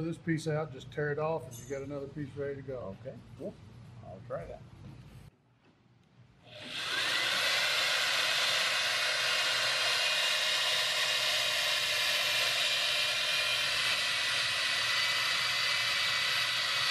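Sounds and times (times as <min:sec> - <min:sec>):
cordless drill motor whine: 0:06.5 - 0:16.9.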